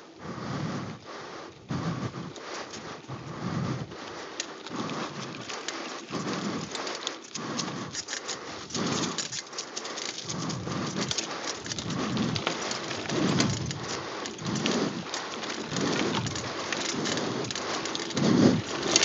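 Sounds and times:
bike rattling: 1.5s - 19.0s
tyres crunching over gravel: 4.0s - 19.0s.

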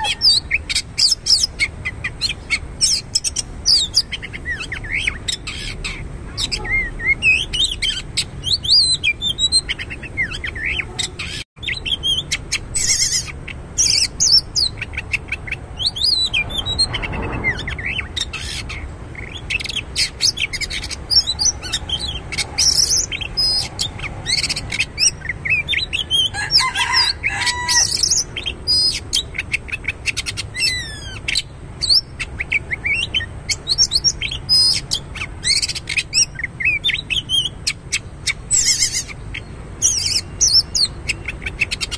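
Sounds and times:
bird singing varied song: 0.0s - 41.9s.

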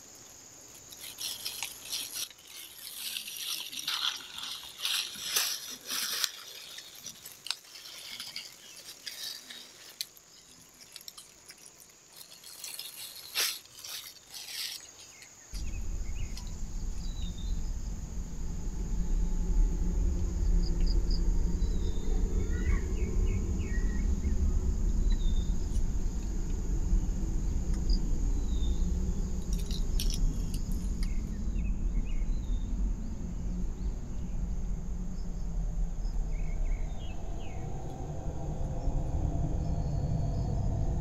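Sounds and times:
insect drone: 0.0s - 41.0s
loud low rumble: 15.5s - 41.0s.

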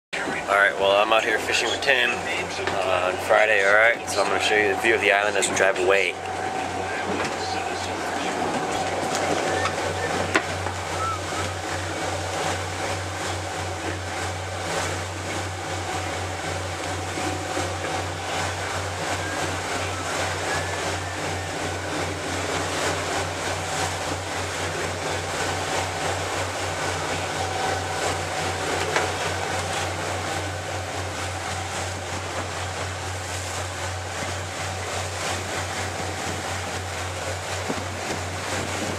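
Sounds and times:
motorboat engine humming: 0.1s - 38.9s
rush of wind and water: 0.2s - 38.9s.

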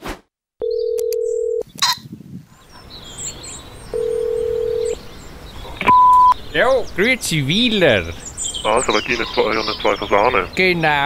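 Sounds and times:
phone line click: 0.6s - 1.6s
telephone ringback tone: 0.6s - 1.6s, 3.9s - 5.0s.

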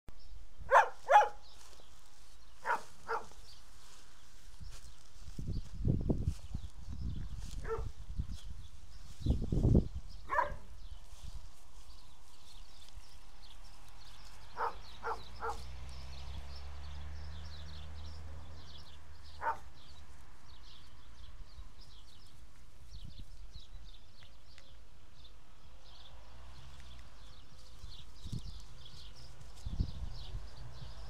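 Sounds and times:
dog barking: 0.7s - 1.4s, 2.6s - 3.4s, 7.6s - 7.9s, 10.3s - 10.7s, 14.6s - 15.7s, 19.4s - 19.7s.

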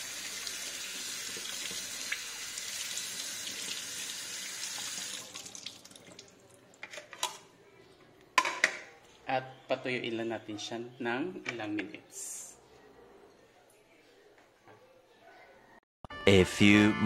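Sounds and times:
water dripping: 0.2s - 6.6s.

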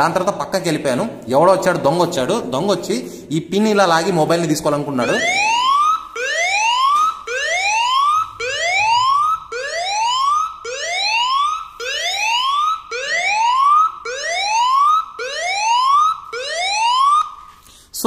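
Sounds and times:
phone alarm siren: 5.0s - 17.5s.

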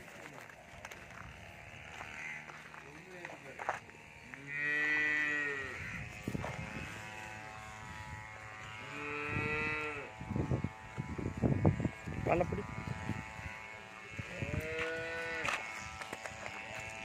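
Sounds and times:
cow mooing: 4.3s - 6.7s, 8.7s - 10.2s, 14.2s - 15.6s.

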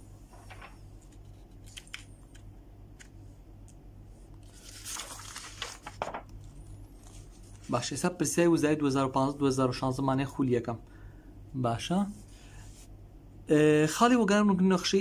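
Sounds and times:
low steady hum: 0.0s - 15.0s
paper rustling: 0.3s - 2.4s, 4.4s - 8.0s.

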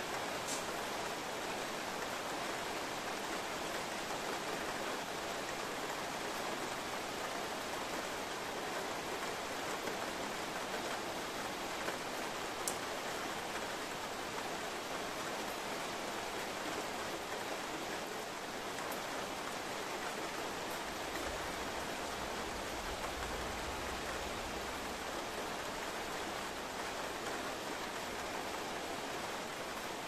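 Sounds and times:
heavy rain hissing: 0.2s - 1.3s.

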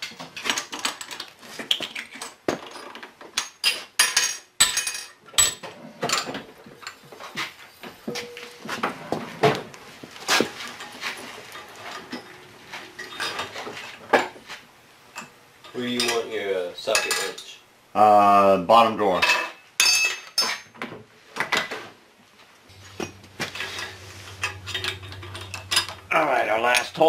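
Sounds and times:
metal tools clinking: 10.7s - 13.9s, 22.7s - 26.1s
wavering falling tone: 22.7s - 26.6s
steady low hum: 22.7s - 27.0s.

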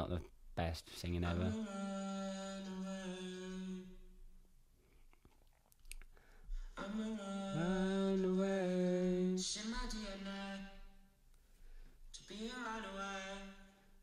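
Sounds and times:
man singing: 1.0s - 4.0s, 6.8s - 10.9s, 12.2s - 13.8s.

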